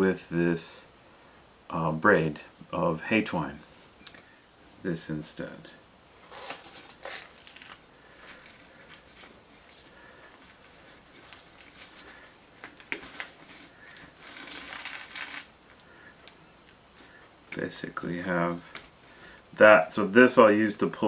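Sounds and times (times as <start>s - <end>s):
cardboard and twine rustling: 6.1s - 19.1s.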